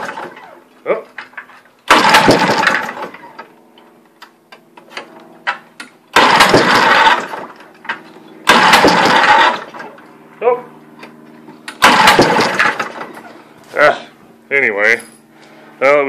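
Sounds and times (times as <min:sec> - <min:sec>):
outboard motor pull-start: 0:00.0 - 0:00.6, 0:01.9 - 0:03.5, 0:04.9 - 0:07.6, 0:08.4 - 0:10.0, 0:11.7 - 0:13.3.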